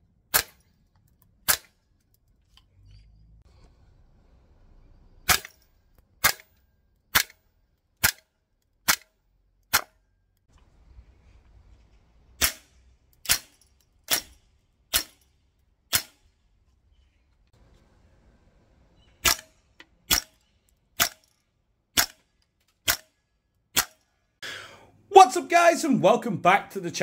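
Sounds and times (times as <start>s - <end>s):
airsoft rifle shots: 8.0s - 9.1s, 12.4s - 12.7s, 22.8s - 23.2s.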